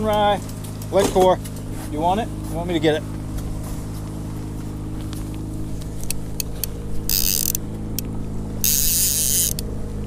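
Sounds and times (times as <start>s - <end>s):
boat engine humming: 0.0s - 10.0s
sharp clicks: 5.8s - 9.7s.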